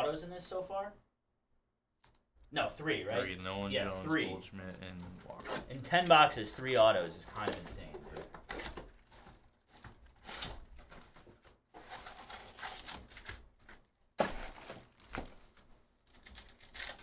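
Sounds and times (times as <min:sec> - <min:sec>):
cardboard scraping: 0:04.9 - 0:15.5
foil packs crinkling: 0:05.3 - 0:17.0.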